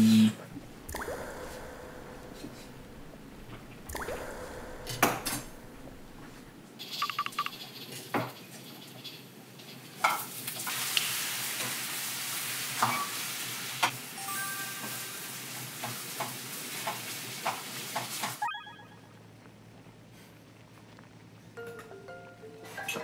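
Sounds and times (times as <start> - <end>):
frying sizzle: 8.6 - 18.4.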